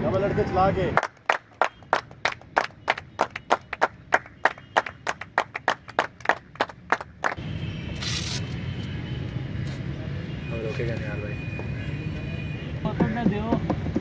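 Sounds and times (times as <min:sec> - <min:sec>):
hand clapping: 0:01.0 - 0:07.4.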